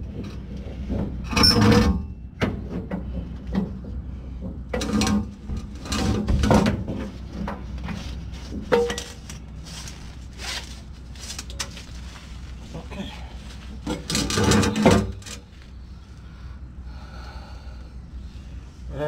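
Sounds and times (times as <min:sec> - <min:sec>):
metal exhaust pipe scraping: 0:00.7 - 0:02.2, 0:03.2 - 0:12.6, 0:13.4 - 0:16.0.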